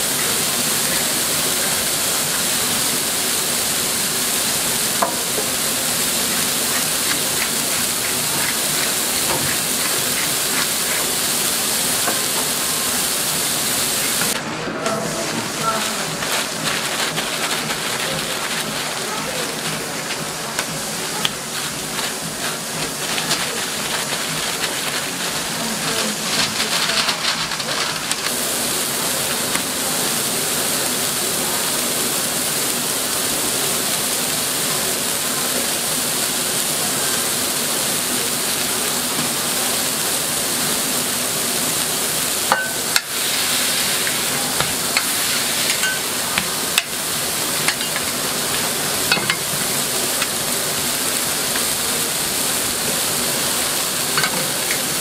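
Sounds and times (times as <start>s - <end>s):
patties sizzling on griddle: 0.0s - 55.0s
spatula scraping griddle: 3.9s - 28.3s, 42.5s - 50.5s.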